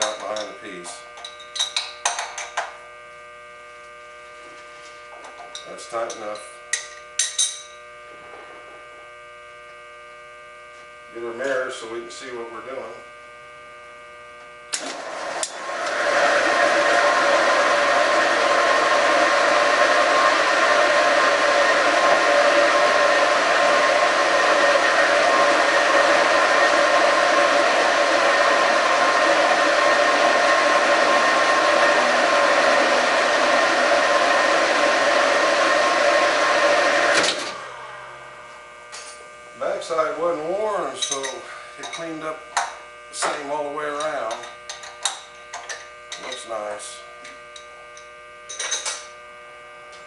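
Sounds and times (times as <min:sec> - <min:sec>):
boring mill whirring: 0:00.0 - 0:50.0.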